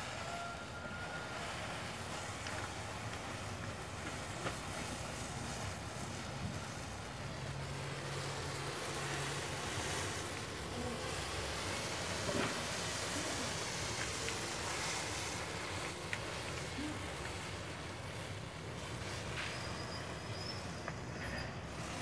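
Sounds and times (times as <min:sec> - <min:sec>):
fire crackling: 0:00.0 - 0:22.0
flames rushing: 0:00.0 - 0:22.0.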